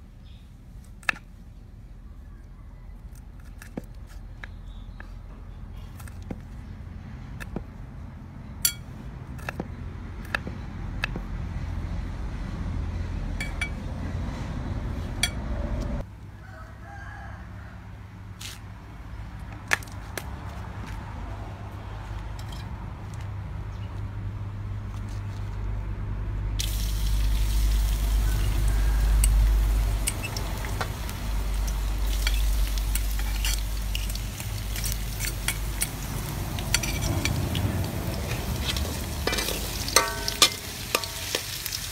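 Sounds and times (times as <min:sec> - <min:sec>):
garlic sizzling in hot oil: 0:26.6 - 0:41.9.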